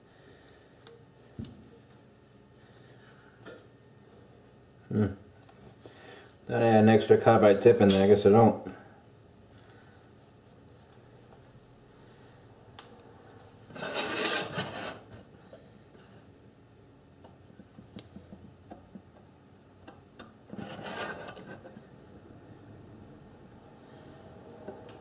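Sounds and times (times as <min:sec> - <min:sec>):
scribe scratching metal: 0:13.7 - 0:15.2, 0:20.5 - 0:21.8.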